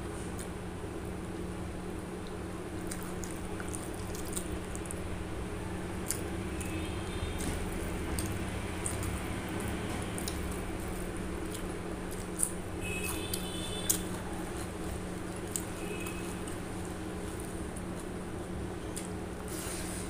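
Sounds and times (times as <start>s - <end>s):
steady low hum: 0.0s - 20.0s
wet chewing of food: 2.2s - 20.0s
lip smacks and clicks: 7.4s - 14.1s.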